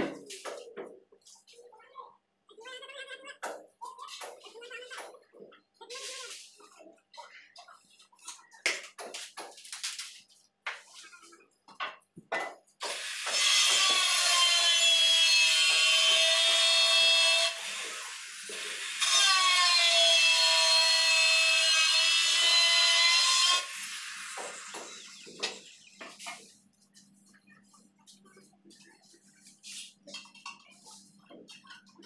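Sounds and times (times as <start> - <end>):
tile cutter whining: 12.8 - 26.0.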